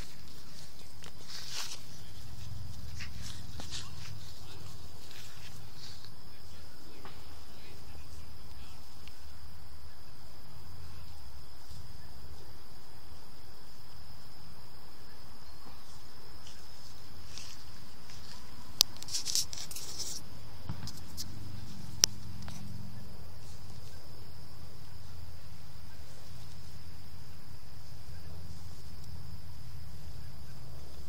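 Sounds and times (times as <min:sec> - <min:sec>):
high-pitched insect drone: 0:00.0 - 0:31.0
brief rustle: 0:17.3 - 0:22.7.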